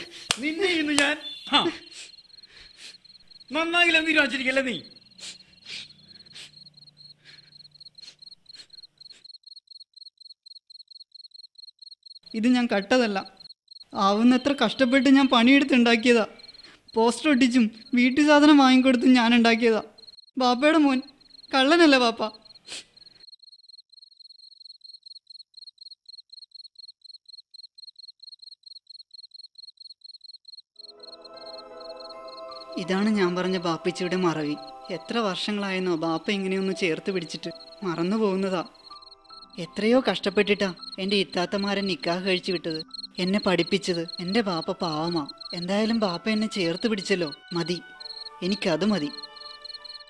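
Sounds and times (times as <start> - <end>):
cricket chirping: 0.0 - 50.0
soft background music: 30.8 - 50.0.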